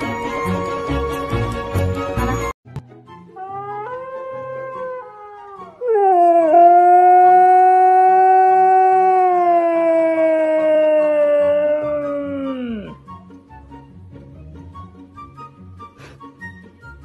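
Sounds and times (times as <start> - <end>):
recorded husky howl from phone: 3.4 - 12.9
husky howling: 3.4 - 13.0.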